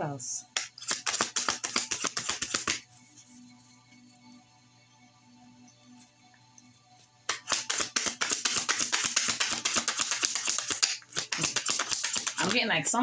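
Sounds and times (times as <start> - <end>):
faint background music: 0.0 - 13.0
cards being shuffled: 0.6 - 2.8, 7.3 - 12.6.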